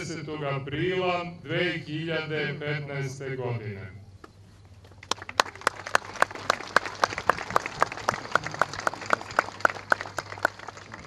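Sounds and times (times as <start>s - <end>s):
crowd clapping: 4.9s - 11.0s.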